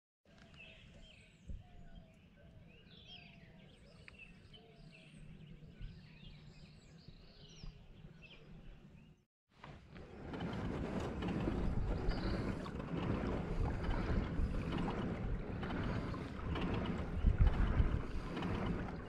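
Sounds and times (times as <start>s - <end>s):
birds chirping and calling: 0.3s - 9.2s, 11.6s - 12.8s
low steady rumble: 9.9s - 19.0s.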